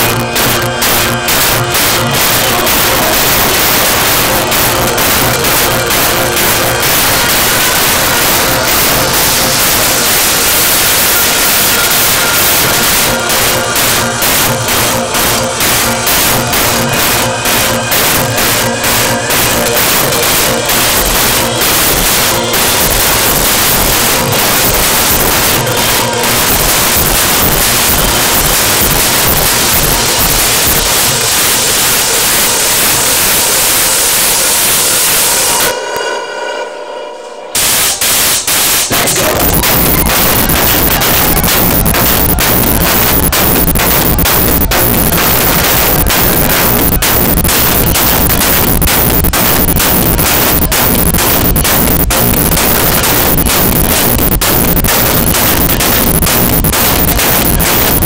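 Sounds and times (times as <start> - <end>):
white-noise wash: 0.0 - 35.7
electronic dance music: 0.0 - 35.8, 37.6 - 58.0.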